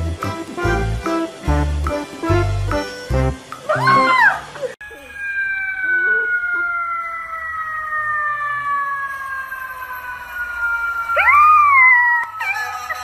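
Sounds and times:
siren sliding down in pitch: 3.6s - 13.0s
puppy howling: 3.7s - 8.8s, 11.1s - 13.0s.

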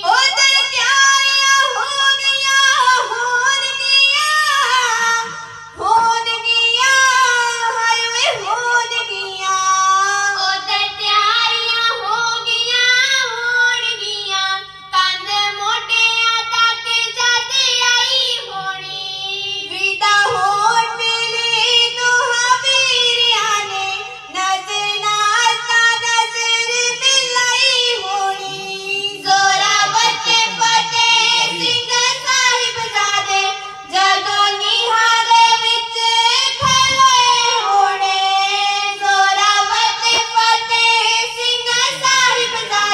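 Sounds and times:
children singing through microphones: 0.0s - 42.9s.

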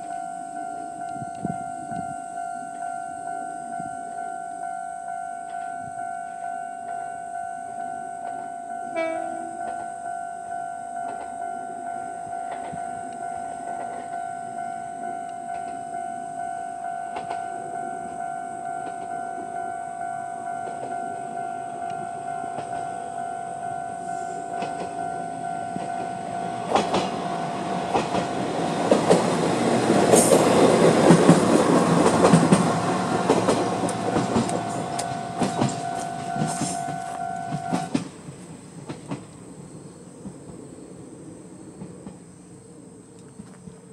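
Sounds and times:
train wheels clacking over rail joints: 25.7s - 39.4s
level crossing electronic bell: 33.8s - 37.9s.

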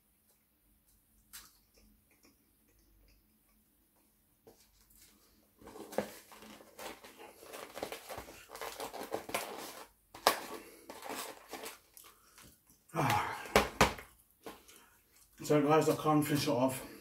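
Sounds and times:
foam box crinkling and creaking: 4.9s - 12.5s.

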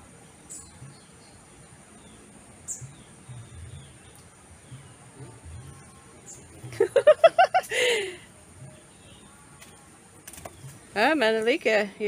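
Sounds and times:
high insect drone: 1.8s - 10.9s.

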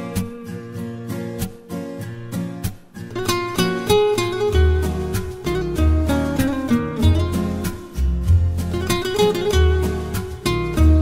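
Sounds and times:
plucked guitar notes: 0.0s - 11.0s.

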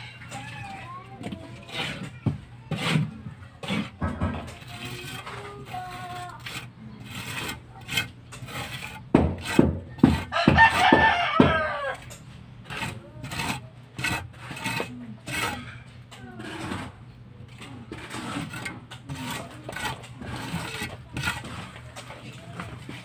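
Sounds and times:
trowel scraping mortar on wall: 0.0s - 23.0s
rooster crowing: 10.3s - 12.1s.

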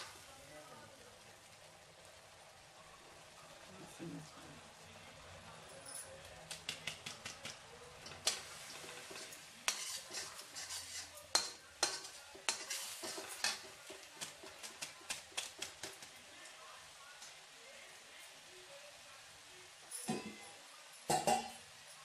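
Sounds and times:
spices sizzling: 0.0s - 22.0s
spoon scraping metal pan: 6.7s - 16.1s.

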